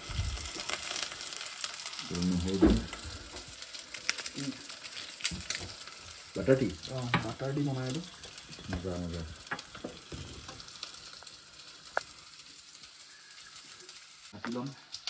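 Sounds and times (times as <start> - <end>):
onions sizzling in oil: 0.0 - 15.0.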